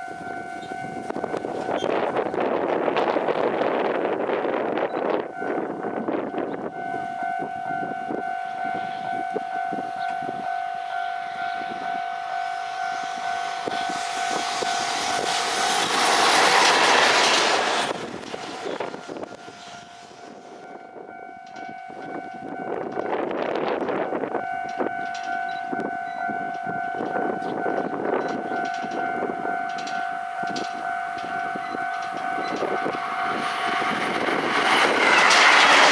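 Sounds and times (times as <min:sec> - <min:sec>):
freight train passing: 0:00.0 - 0:35.9
steady high tone: 0:04.7 - 0:35.9
wheels clacking over rail joints: 0:10.0 - 0:23.4, 0:24.4 - 0:35.9.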